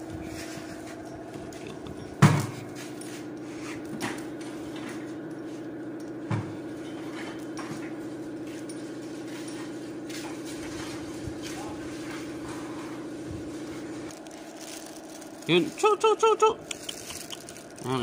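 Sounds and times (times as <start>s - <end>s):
steady machine hum: 0.0s - 18.0s
sharp knocks on engine parts: 2.2s - 2.6s.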